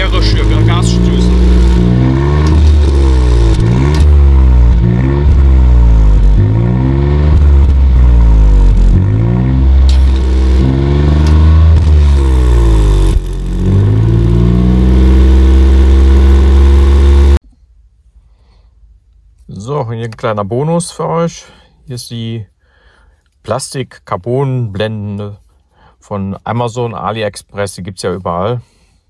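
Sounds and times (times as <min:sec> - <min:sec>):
car engine revving: 0:00.0 - 0:17.4.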